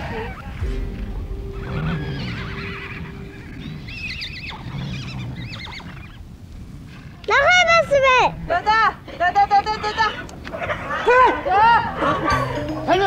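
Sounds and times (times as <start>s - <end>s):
horses whinnying: 1.9s - 6.2s.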